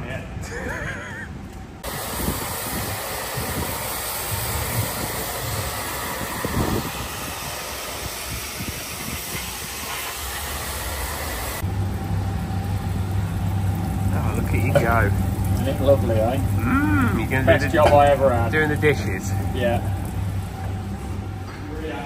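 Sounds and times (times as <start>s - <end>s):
steady low hum: 0.0s - 22.0s
high-pressure spray jet hiss: 1.8s - 11.6s.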